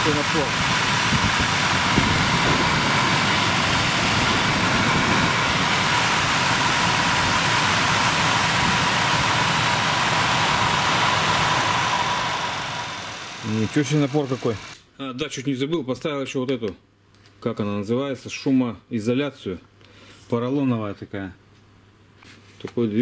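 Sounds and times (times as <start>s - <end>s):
heater blower fan running: 0.0s - 14.8s.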